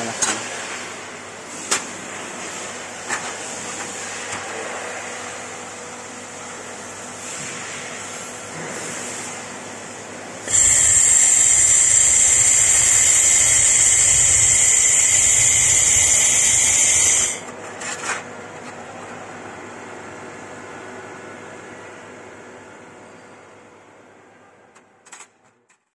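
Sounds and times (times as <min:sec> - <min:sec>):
laser welding gun hissing: 0:10.4 - 0:17.5
short air puffs: 0:10.5 - 0:17.4.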